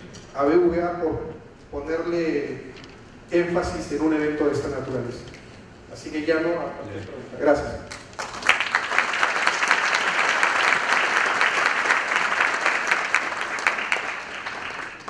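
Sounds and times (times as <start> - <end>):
audience applauding: 7.9 - 15.0.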